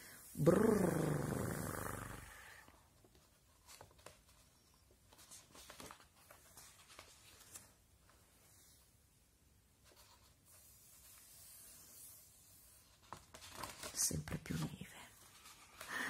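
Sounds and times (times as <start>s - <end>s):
page turning: 3.0s - 8.2s, 9.8s - 15.9s
paper rustling: 3.0s - 8.8s, 9.8s - 16.0s.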